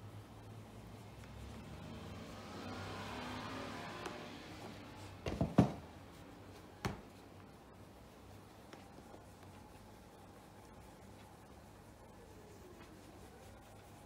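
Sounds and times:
cloth rubbing shoe: 3.5s - 14.0s.

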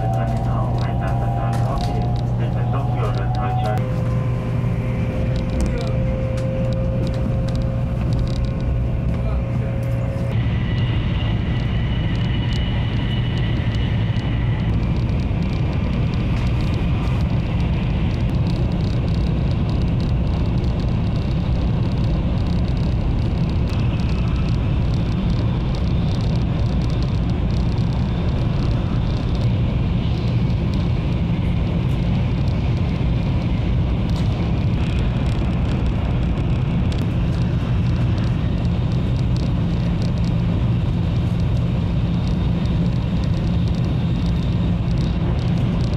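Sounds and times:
thin high whine: 0.0s - 8.0s
train cabin low rumble: 0.0s - 45.9s.

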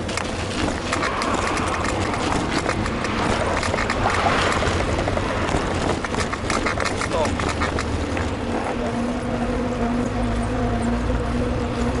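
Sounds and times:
wind buffeting microphone: 0.0s - 9.3s
bicycle rolling and rattling: 0.0s - 12.0s.

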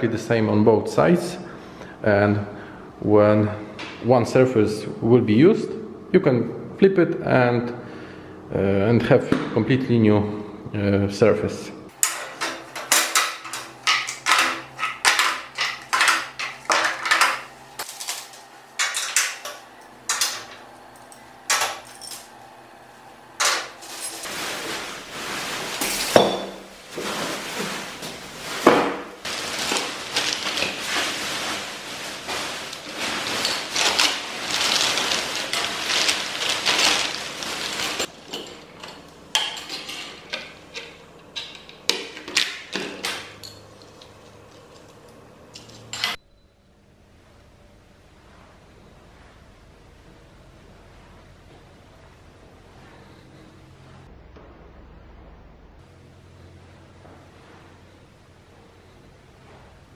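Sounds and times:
steel parts clanking on metal: 12.0s - 22.3s, 33.4s - 46.2s.

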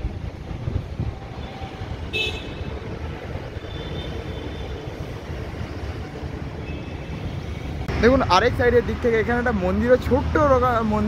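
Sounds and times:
road traffic noise: 0.0s - 11.0s
short vehicle horn toot: 2.1s - 2.6s.

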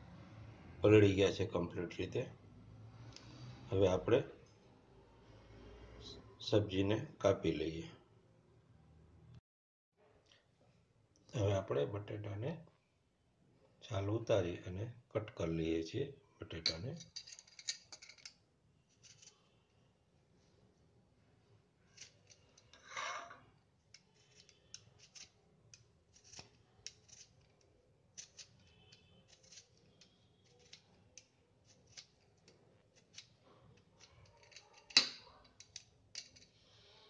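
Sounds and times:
peeler scraping potato skin: 18.9s - 19.4s, 24.0s - 35.0s.

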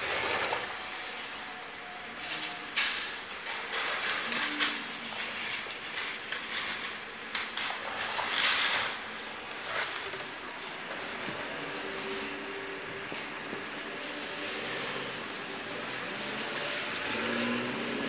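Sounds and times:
clicks and clatter: 2.2s - 10.4s.

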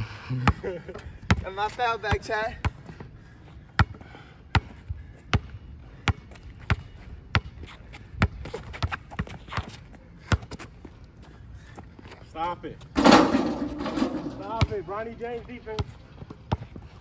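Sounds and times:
basketball bouncing on asphalt: 2.1s - 2.9s, 3.8s - 10.6s, 13.0s - 14.9s, 15.7s - 17.0s.

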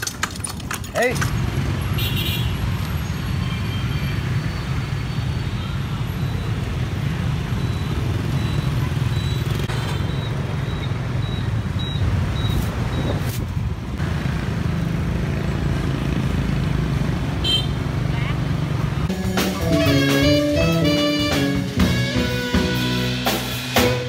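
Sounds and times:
motorbike engines idling in traffic: 0.0s - 19.1s.

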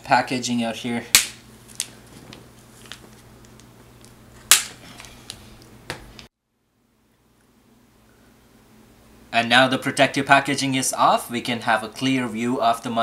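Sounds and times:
foam packaging clicks and snaps: 2.8s - 5.1s.

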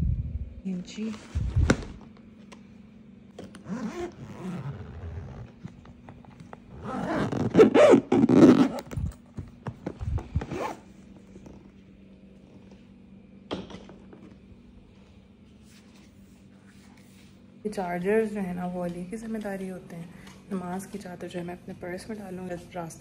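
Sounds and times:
suitcase zipper pulled shut: 3.4s - 5.8s, 6.7s - 9.2s, 10.1s - 11.6s.

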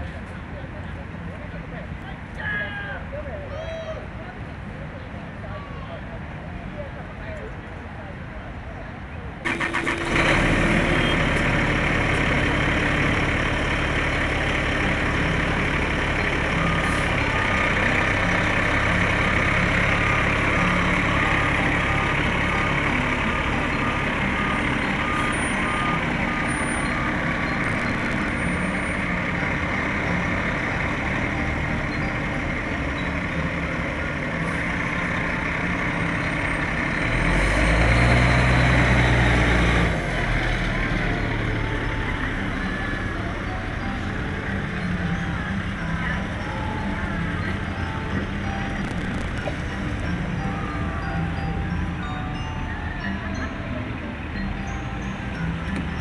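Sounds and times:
fire truck diesel engine running: 9.4s - 56.0s
electronic beeping: 48.6s - 49.8s.

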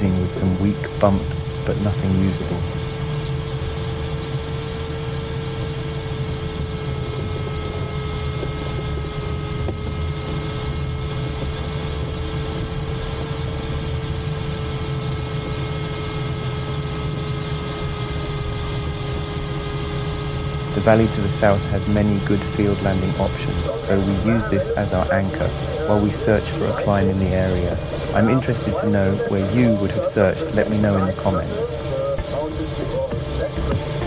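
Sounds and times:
cockpit airflow rumble and hiss: 0.0s - 12.0s, 14.1s - 34.0s
thin electronic tone: 12.1s - 14.0s.

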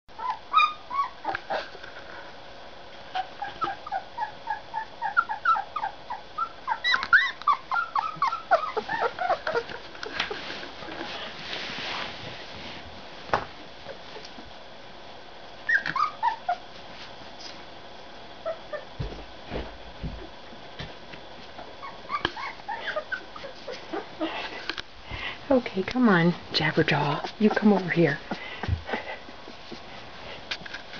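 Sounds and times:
puppies whimpering and squealing: 0.2s - 1.8s, 3.1s - 10.6s, 15.6s - 16.8s, 18.4s - 19.0s, 21.8s - 24.5s, 27.0s - 30.0s.

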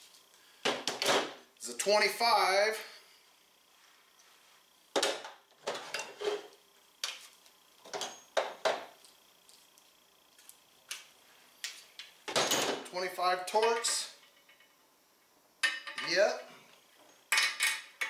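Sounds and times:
metal tools clinking: 15.6s - 16.3s.

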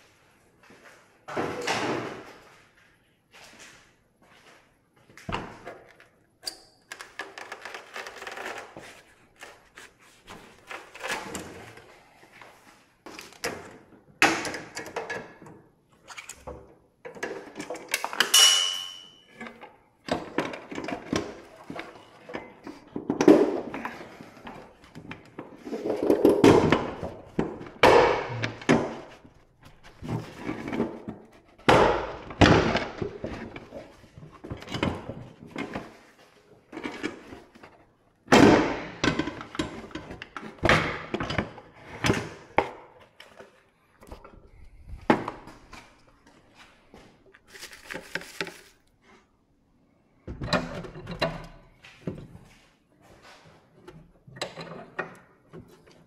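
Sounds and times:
ringing metal clang: 18.3s - 19.3s
thuds knocks and metal clanks: 25.0s - 36.0s.

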